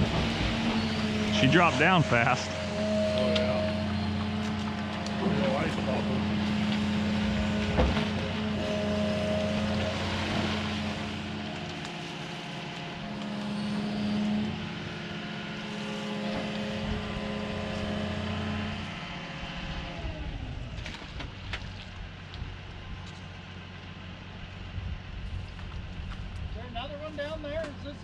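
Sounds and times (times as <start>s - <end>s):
excavator diesel engine running: 0.0s - 21.4s.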